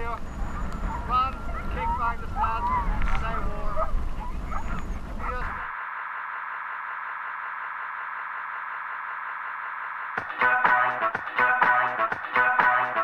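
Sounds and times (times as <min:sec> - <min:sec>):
wind rumbling on microphone: 0:00.0 - 0:05.7.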